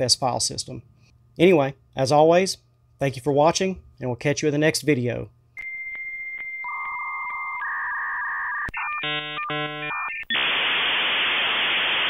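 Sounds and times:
modem beeping tones: 5.6s - 11.1s
modem chirping tones: 5.6s - 12.0s
modem hiss: 5.6s - 12.0s.

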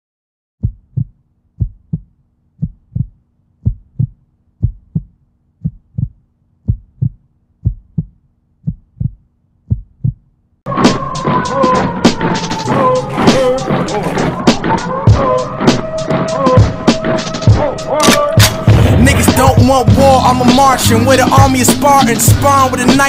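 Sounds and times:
heartbeat double thumps: 0.6s - 10.3s
loud music: 10.7s - 23.0s.

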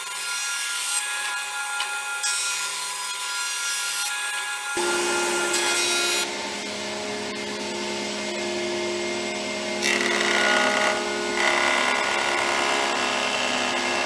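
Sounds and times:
deeper hum: 4.8s - 12.9s.

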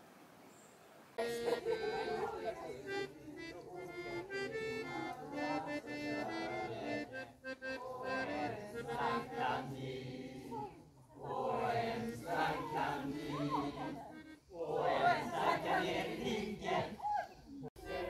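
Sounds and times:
accordion folk dance tune: 1.2s - 10.0s, 11.6s - 15.5s
group of people singing: 4.8s - 17.1s, 17.8s - 18.0s.

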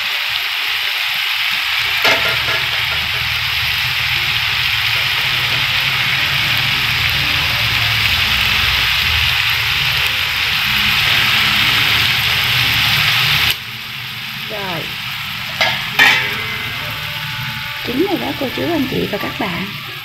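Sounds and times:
gas burner roar: 0.0s - 20.0s
sauce sizzling in frying pan: 0.0s - 20.0s.

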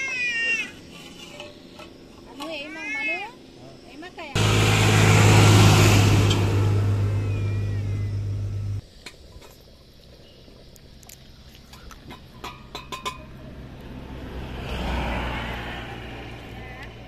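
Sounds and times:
tractor engine droning: 4.4s - 8.8s.

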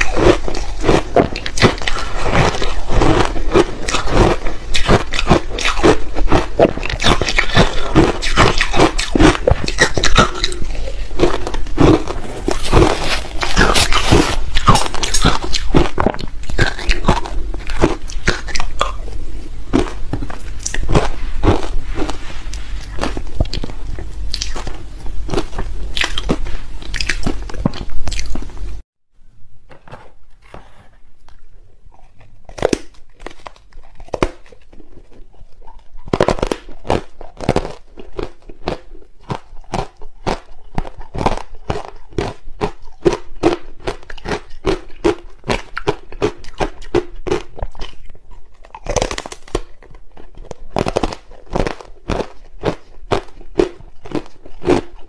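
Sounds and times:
crunching ice: 0.0s - 19.0s, 32.6s - 48.1s, 48.7s - 55.0s.

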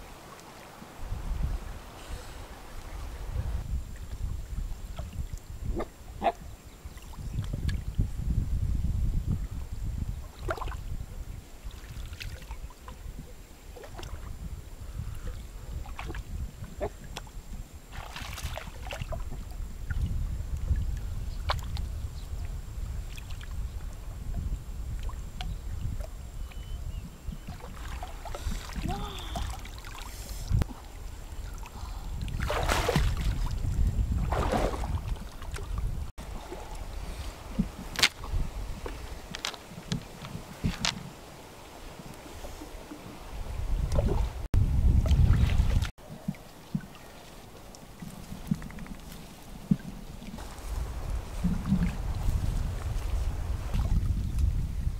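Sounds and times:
river water sloshing and splashing: 0.0s - 3.6s, 10.2s - 10.9s, 11.6s - 14.4s, 15.3s - 20.2s, 21.4s - 23.6s, 27.4s - 54.2s.

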